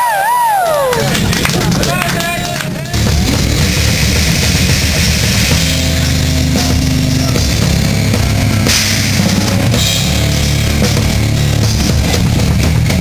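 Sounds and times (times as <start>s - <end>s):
heavy rock band playing: 1.0s - 13.0s
drum kit with crashing cymbals: 2.8s - 13.0s.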